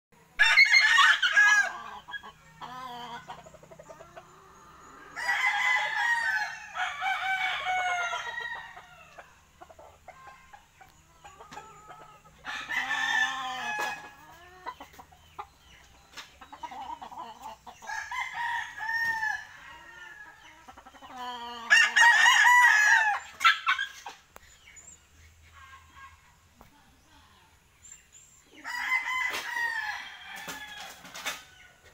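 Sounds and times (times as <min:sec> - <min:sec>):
rooster crowing: 0:00.4 - 0:01.9, 0:05.0 - 0:09.2, 0:12.4 - 0:14.2, 0:17.9 - 0:20.4, 0:21.6 - 0:23.3, 0:28.6 - 0:31.1
clucking: 0:01.7 - 0:05.1, 0:09.6 - 0:12.4, 0:13.3 - 0:17.9.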